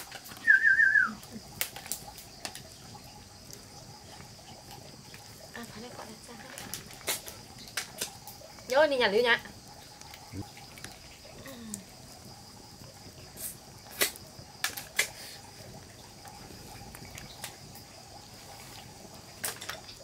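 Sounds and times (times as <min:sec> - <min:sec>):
high insect drone: 0:00.0 - 0:20.0.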